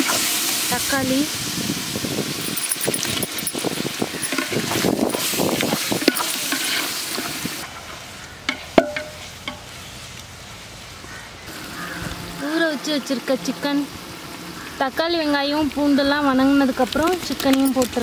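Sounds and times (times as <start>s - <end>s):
onions sizzling in oil: 0.0s - 18.0s
wooden spoon scraping a pot: 4.2s - 7.5s.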